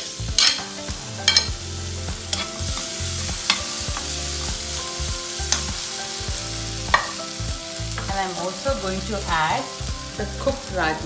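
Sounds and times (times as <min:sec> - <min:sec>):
frying sizzle: 0:00.0 - 0:11.0
spoon scraping pan: 0:00.4 - 0:01.5, 0:02.3 - 0:04.2.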